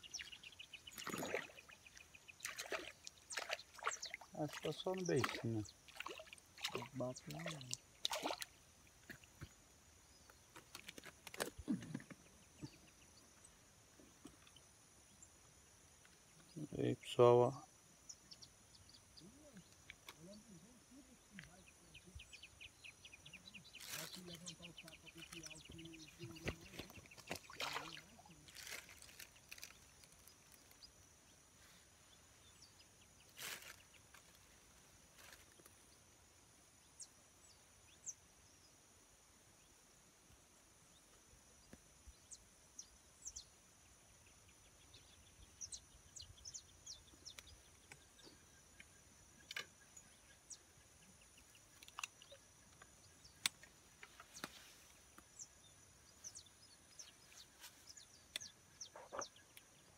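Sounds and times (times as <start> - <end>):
bird chirps: 0.0 - 8.6, 16.0 - 31.0, 41.6 - 59.9.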